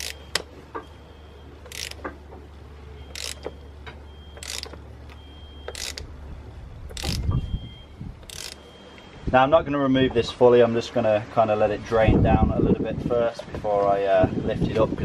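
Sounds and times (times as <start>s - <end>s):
ratchet clicking: 0.0s - 0.4s, 1.7s - 2.1s, 3.1s - 3.5s, 4.4s - 4.8s, 5.7s - 6.1s, 6.9s - 7.3s, 8.2s - 8.6s.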